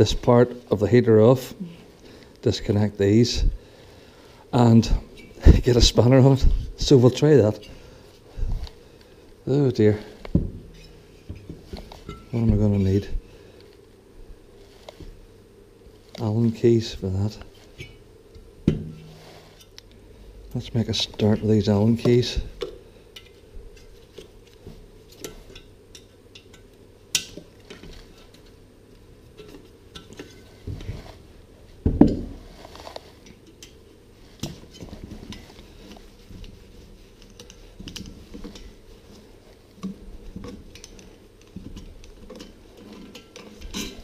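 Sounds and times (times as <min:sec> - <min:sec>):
metal parts clinking and tapping: 0:39.8 - 0:44.0.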